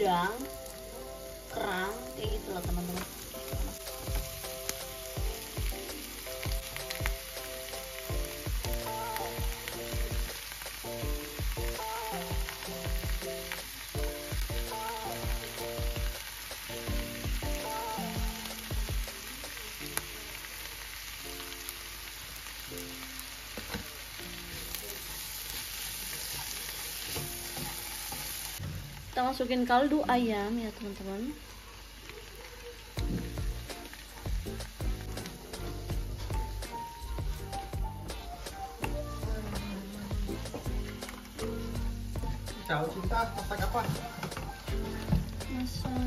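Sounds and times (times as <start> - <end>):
seafood sizzling in a pan: 0.0 - 46.0
background music with a beat: 2.2 - 19.3, 33.0 - 46.0
wooden spatula stirring: 24.5 - 28.6.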